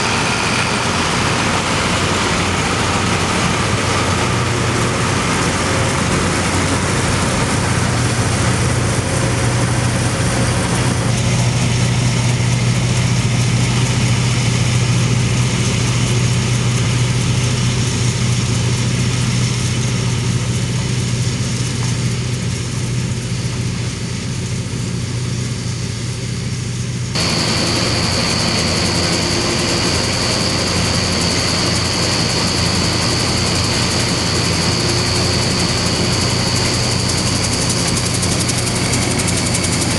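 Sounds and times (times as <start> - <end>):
high machine whine: 0.0 - 15.8, 27.2 - 39.9
combine harvester droning: 0.0 - 39.9.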